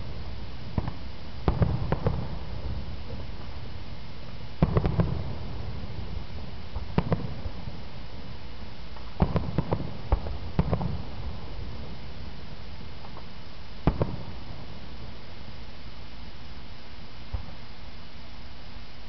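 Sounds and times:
firework shells bursting: 0:00.0 - 0:15.2
firework pops: 0:00.8 - 0:03.3, 0:04.6 - 0:05.4, 0:06.7 - 0:07.7, 0:08.9 - 0:11.1, 0:13.0 - 0:14.4.

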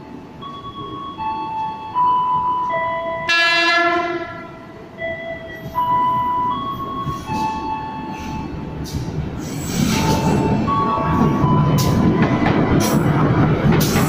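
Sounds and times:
train horn blast: 0:03.3 - 0:04.6.

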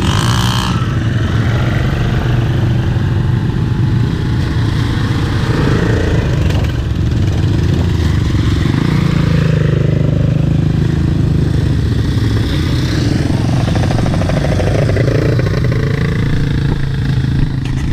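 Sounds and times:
quad bike engines revving: 0:00.0 - 0:17.9.

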